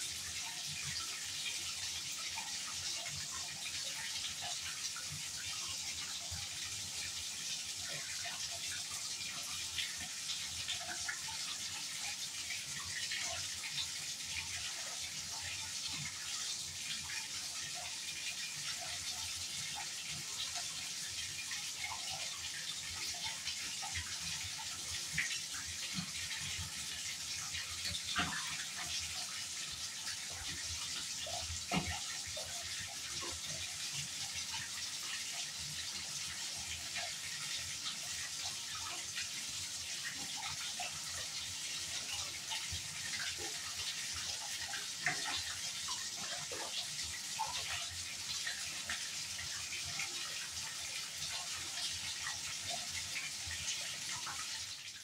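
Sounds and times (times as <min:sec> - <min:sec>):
water running into a bathtub: 0:00.0 - 0:55.0.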